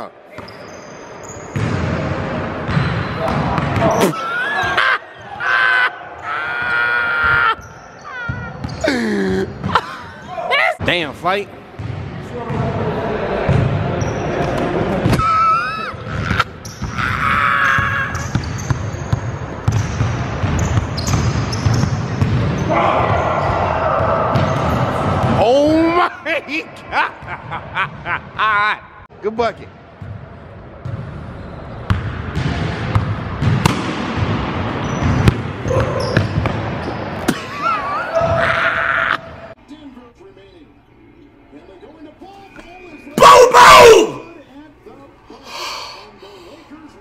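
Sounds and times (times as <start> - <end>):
high shoe squeak: 0.3 - 1.6, 7.6 - 8.9, 16.6 - 17.1, 17.7 - 22.7, 34.8 - 37.1.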